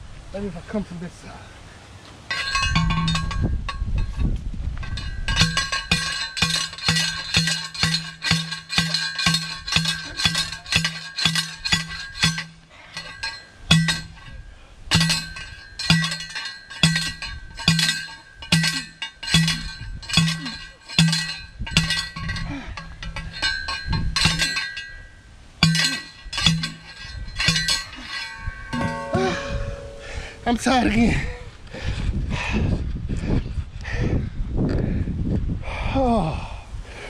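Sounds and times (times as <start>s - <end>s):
post driver clanging on metal rod: 2.3s - 30.9s.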